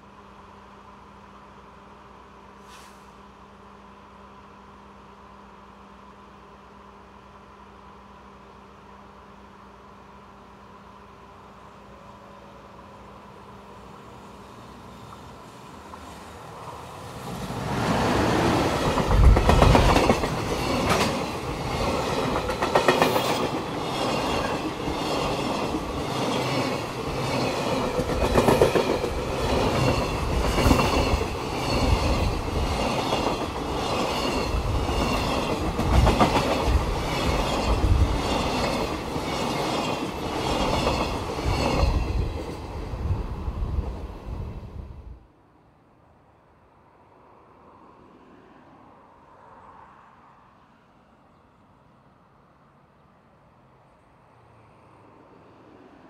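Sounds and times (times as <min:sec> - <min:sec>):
freight train passing: 0:00.0 - 0:56.0
train wheels clacking: 0:18.4 - 0:42.6.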